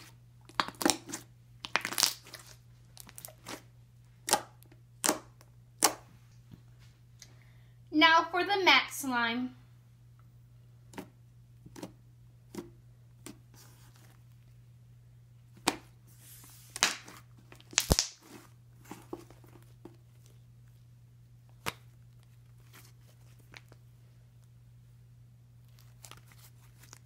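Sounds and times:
slime crackling tears: 0.5s - 3.6s, 17.6s - 18.2s
sticky slime clicks and pops: 4.2s - 6.0s.

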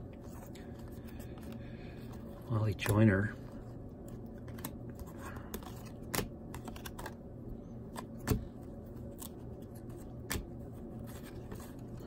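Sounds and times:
cards flipping with clicks: 4.0s - 7.2s, 7.9s - 11.9s.

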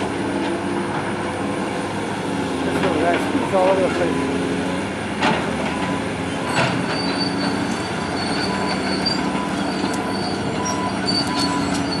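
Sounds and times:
diesel engines running: 0.0s - 12.0s
high metallic squeals: 6.3s - 12.0s.

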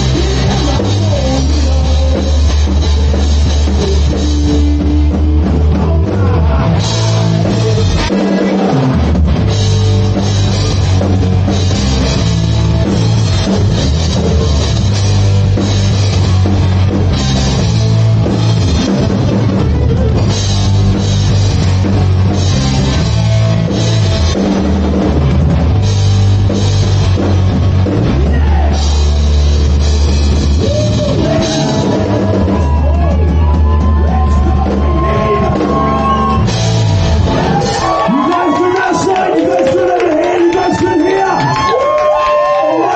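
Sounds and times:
person singing: 0.0s - 9.2s, 30.6s - 36.6s
drum kit with cymbals: 0.0s - 38.2s
bass guitar: 0.0s - 42.9s
electric guitars: 0.0s - 42.9s.

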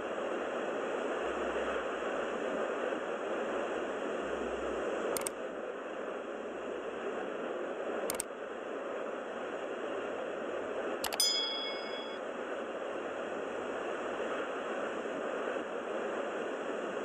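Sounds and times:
sharp clicks: 11.0s - 11.2s.

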